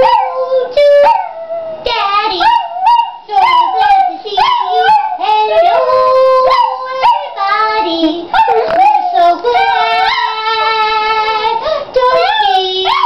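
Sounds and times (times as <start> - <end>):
woman singing howl-like notes: 0.0 - 13.0
dog howling: 2.4 - 7.5, 8.3 - 11.5, 12.1 - 13.0.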